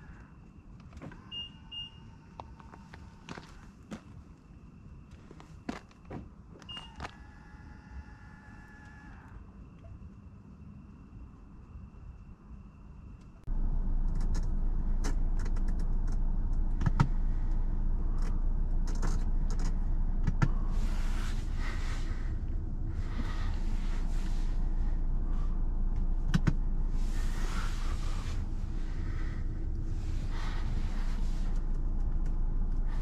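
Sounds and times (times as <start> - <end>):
engine and road hum: 0.0 - 8.1, 13.4 - 33.0
hiss: 26.9 - 29.4, 30.0 - 31.6.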